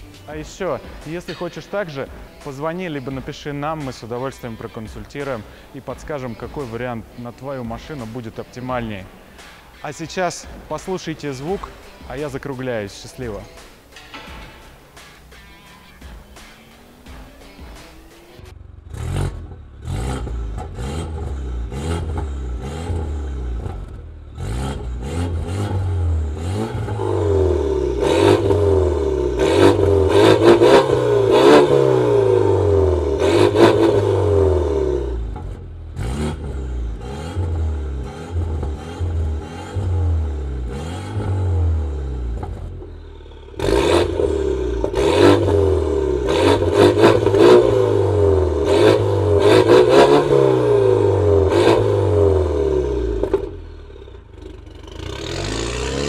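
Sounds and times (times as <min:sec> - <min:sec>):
exhaust cracks: 0:00.2 - 0:15.3, 0:17.9 - 0:56.0
car engine revving: 0:17.9 - 0:56.0.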